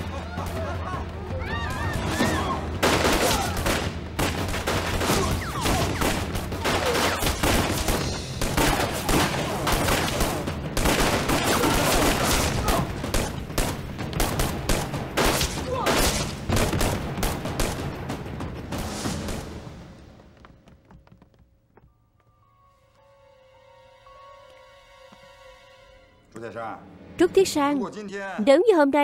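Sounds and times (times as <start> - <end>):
gunfire: 2.8 - 19.6.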